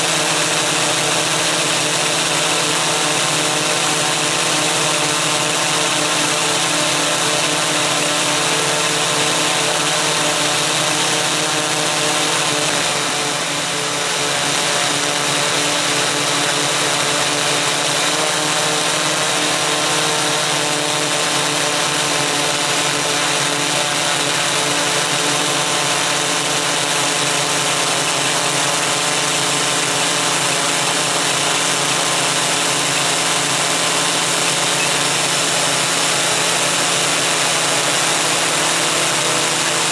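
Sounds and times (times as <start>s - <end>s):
multicopter motors whining: 0.0s - 39.9s.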